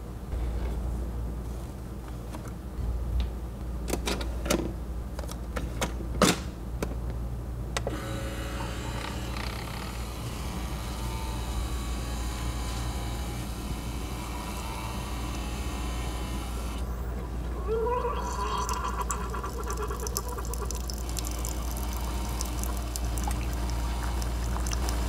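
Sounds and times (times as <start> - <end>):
coffee maker humming: 7.9 - 25.0.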